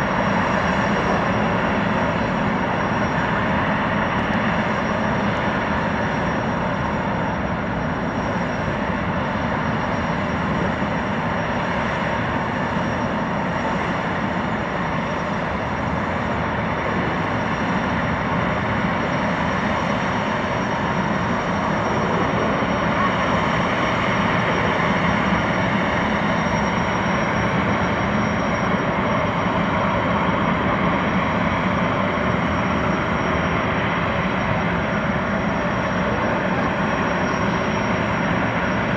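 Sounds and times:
thin high whine: 15.1 - 38.9.

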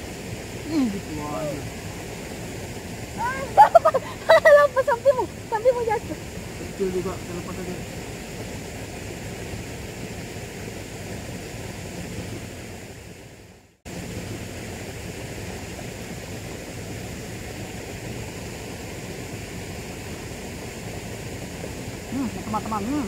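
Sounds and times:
river water rushing: 0.0 - 13.3.

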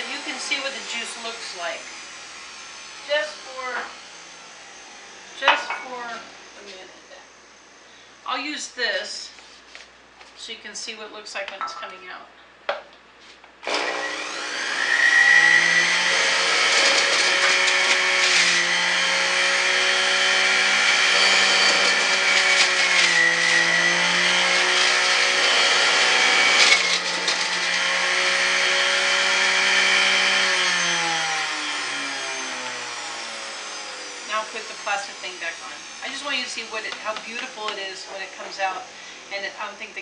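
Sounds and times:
electric juicer motor whine: 0.0 - 8.2, 13.6 - 40.0.

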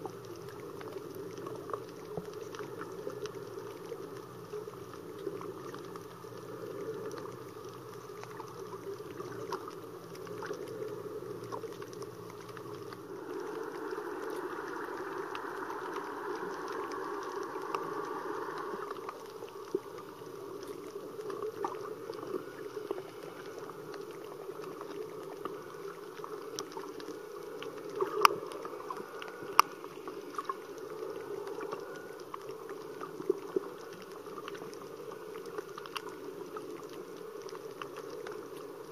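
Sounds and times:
muffled underwater water noise: 0.0 - 38.9
bright hiss: 13.2 - 19.7.

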